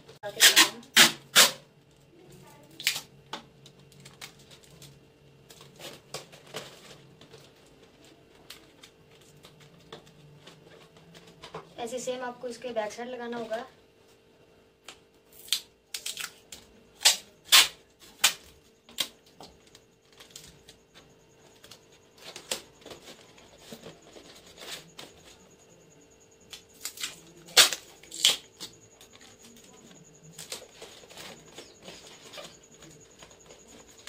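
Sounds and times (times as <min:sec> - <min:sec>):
faint steady hum: 0:00.0 - 0:34.0
sticky tape ripping from roll: 0:00.3 - 0:01.6, 0:15.3 - 0:16.4, 0:17.0 - 0:19.1, 0:26.8 - 0:28.5
paper rustling: 0:21.4 - 0:25.5.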